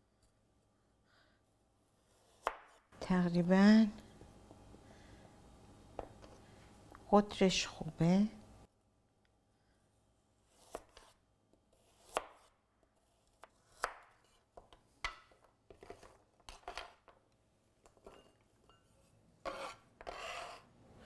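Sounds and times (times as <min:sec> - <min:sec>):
knife slicing carrot: 0:10.5 - 0:14.5.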